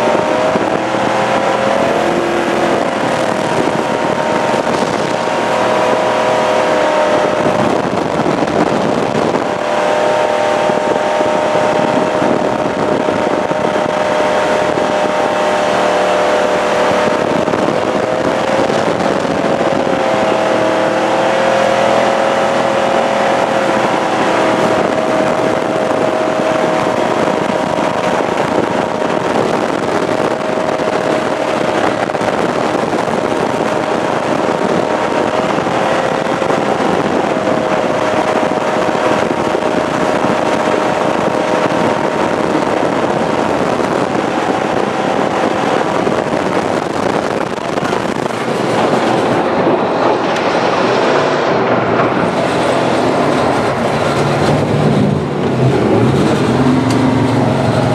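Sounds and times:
jet boat engine droning: 0.0s - 57.9s
water rushing: 0.0s - 57.9s.

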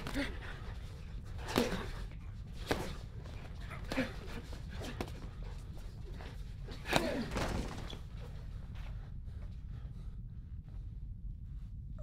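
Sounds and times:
low hum: 0.0s - 12.0s
punches smacking: 1.3s - 5.2s.

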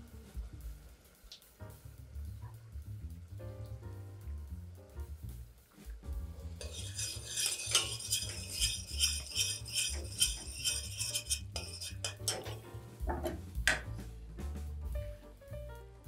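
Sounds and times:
utensil clinking against a pan: 6.6s - 13.4s.

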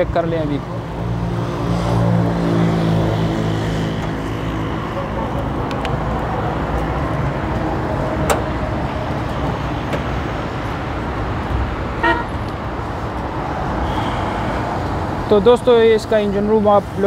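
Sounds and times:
traffic rumble: 0.0s - 17.0s
car horn toot: 12.0s - 12.5s.

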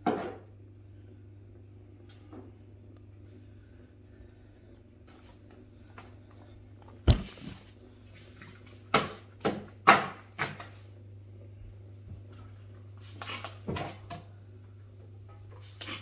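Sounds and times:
knocks on kitchen counter: 7.1s - 7.6s.

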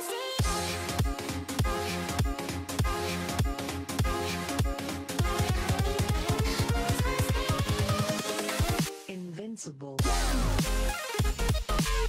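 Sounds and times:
rapid bass hits: 0.4s - 8.0s, 10.0s - 12.0s.

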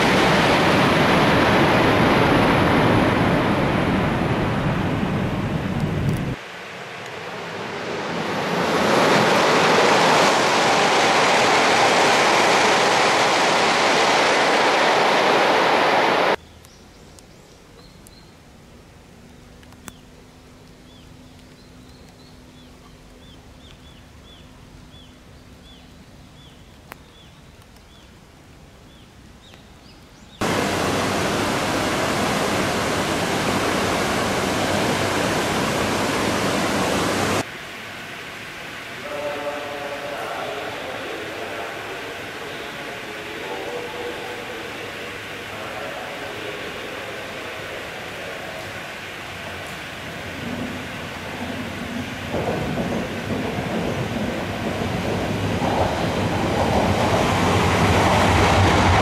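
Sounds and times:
river flowing fast: 0.0s - 16.4s, 30.4s - 59.0s
train rushing past: 0.0s - 16.4s, 30.4s - 59.0s.

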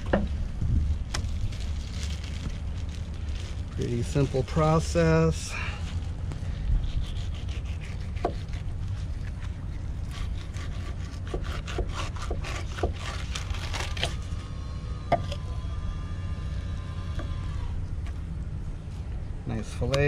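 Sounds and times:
steady low rumble: 0.0s - 20.0s
knife scraping fish fillet: 6.8s - 14.2s.

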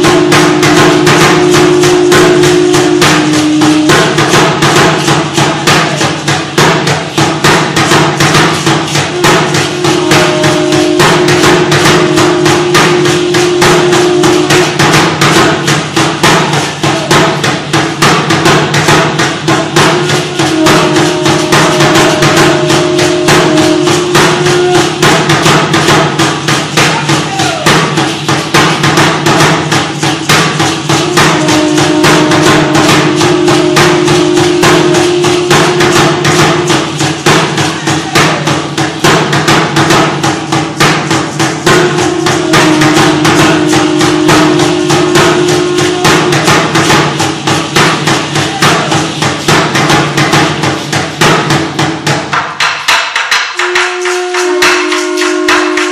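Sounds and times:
held notes: 0.0s - 6.2s, 8.5s - 17.2s, 19.5s - 27.8s, 29.7s - 38.9s, 40.3s - 49.2s, 53.4s - 55.9s
drum beating fast rhythm: 0.0s - 55.9s
ankle rattles shaking: 1.4s - 55.9s.

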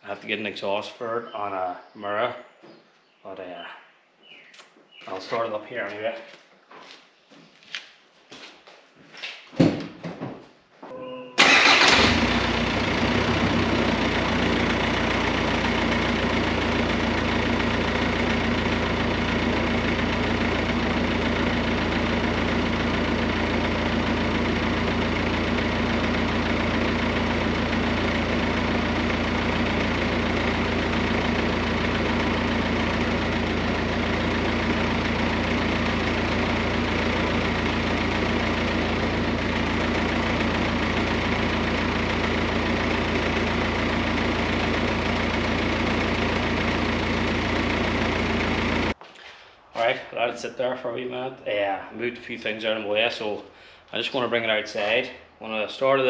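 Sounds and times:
diesel engine starting and idling: 11.4s - 49.0s.

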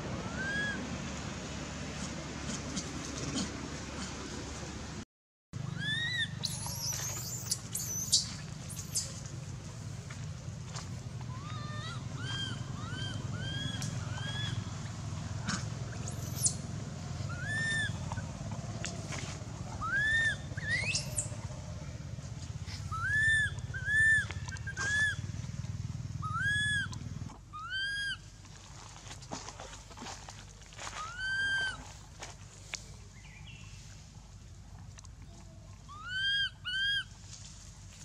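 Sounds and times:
steady low hum: 5.6s - 31.0s
baby monkey crying: 5.7s - 8.2s, 11.3s - 14.6s, 17.3s - 18.0s, 19.8s - 21.2s, 22.9s - 25.2s, 26.2s - 26.9s, 27.5s - 28.2s, 31.0s - 31.8s, 35.9s - 37.1s.

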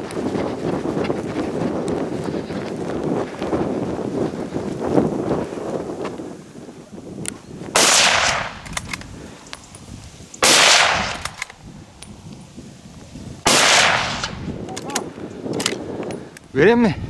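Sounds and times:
wind rumble on microphone: 0.0s - 17.0s
gunshots: 7.8s - 8.9s, 10.4s - 11.5s, 13.5s - 14.4s.

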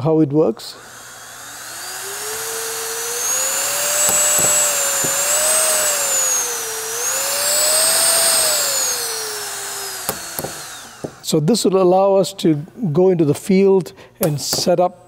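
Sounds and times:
compressor motor whining: 0.5s - 11.4s.

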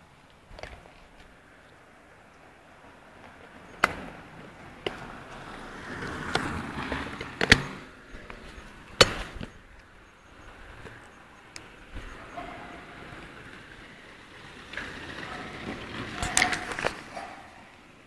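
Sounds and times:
brief rustle: 14.7s - 17.7s.

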